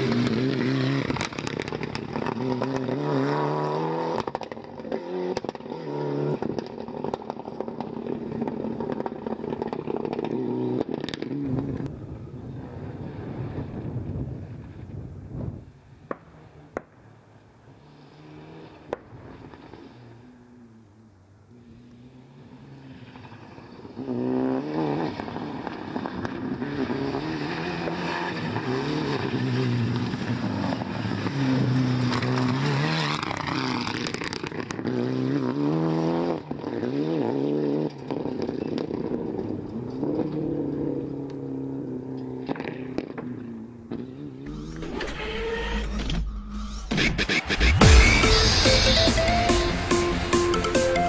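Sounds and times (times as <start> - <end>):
rally car engine revving: 0.0 - 11.9, 17.8 - 51.0
gravel and tyre noise: 0.0 - 51.0
electronic music: 46.2 - 51.0.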